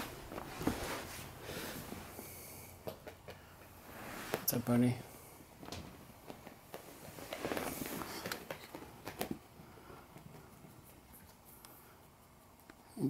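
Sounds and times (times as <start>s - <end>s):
puppies scuffling on carpet: 0.0s - 2.3s, 5.6s - 11.6s.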